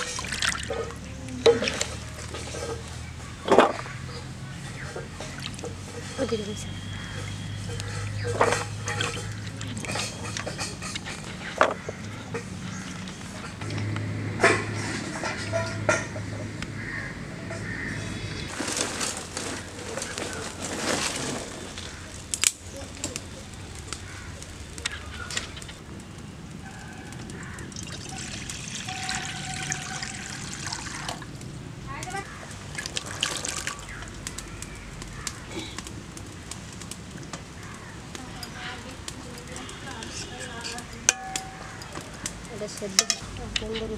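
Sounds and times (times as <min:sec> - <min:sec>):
birds calling: 0:00.0 - 0:13.8, 0:14.5 - 0:18.5, 0:21.2 - 0:31.3, 0:31.9 - 0:36.5, 0:37.2 - 0:43.9
wood fire crackling: 0:00.0 - 0:43.9
splash into hot water: 0:27.7 - 0:31.3, 0:32.6 - 0:34.2.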